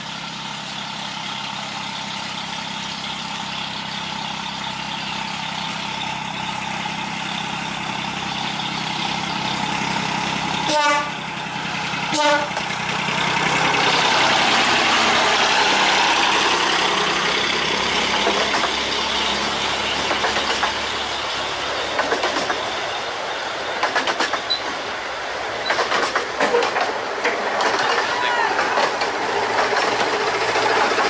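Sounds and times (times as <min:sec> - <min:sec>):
miniature train passing: 0:00.0 - 0:31.0
wheels clicking over rail joints: 0:06.7 - 0:22.9, 0:23.7 - 0:31.0
locomotive horn toot: 0:10.6 - 0:11.2, 0:12.1 - 0:12.7.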